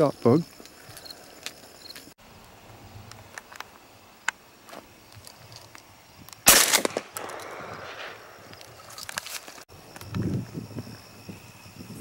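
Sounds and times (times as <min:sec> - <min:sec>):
faint ticks and rustles: 0:00.1 - 0:06.4
shotgun blast: 0:06.5 - 0:08.5.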